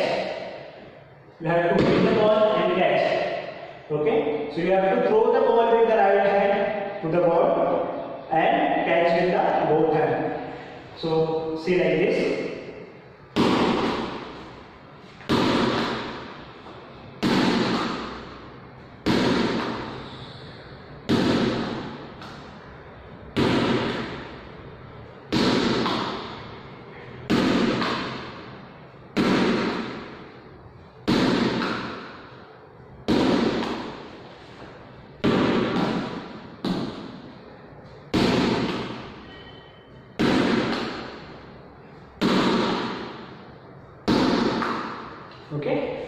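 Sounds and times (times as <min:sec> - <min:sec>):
ball bouncing on hall floor: 0:01.5 - 0:03.7, 0:12.1 - 0:20.1, 0:20.9 - 0:24.5, 0:25.2 - 0:26.6, 0:27.2 - 0:30.4, 0:31.0 - 0:32.4, 0:33.0 - 0:43.4, 0:44.0 - 0:46.0.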